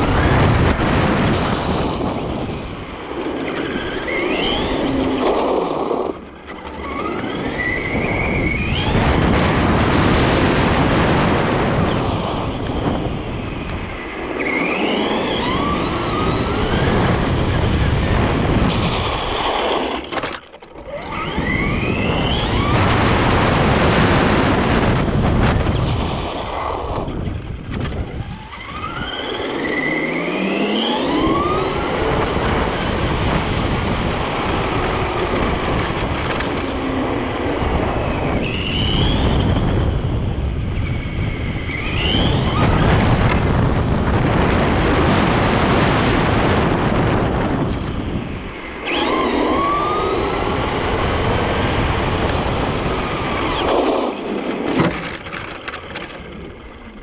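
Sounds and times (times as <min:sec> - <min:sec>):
electric motor whine: 0:00.0 - 0:57.0
tyre and wind noise: 0:00.0 - 0:57.0.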